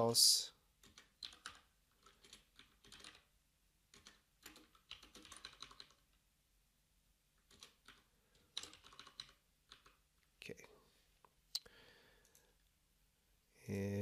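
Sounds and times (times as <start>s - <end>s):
faint computer keyboard typing: 0.8s - 3.3s, 3.9s - 6.2s, 7.4s - 10.3s.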